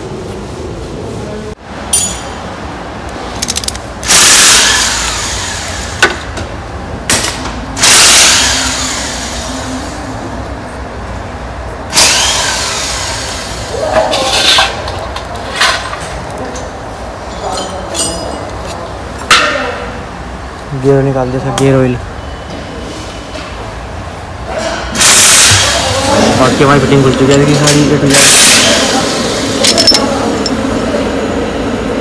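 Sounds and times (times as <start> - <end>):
workshop tool noise bursts: 4.0 - 6.4, 7.8 - 9.9, 11.9 - 13.7, 24.9 - 30.6.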